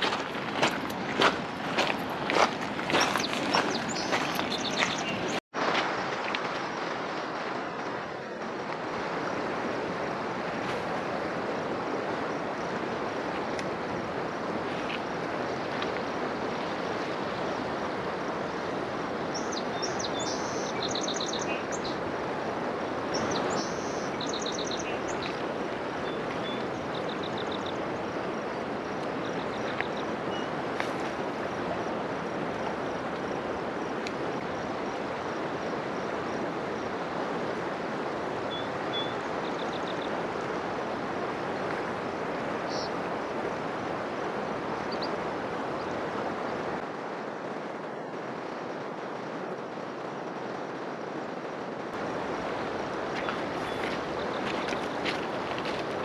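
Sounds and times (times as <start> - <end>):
fast-flowing river rushing: 0.0 - 56.0
songbird trilling: 23.1 - 25.4.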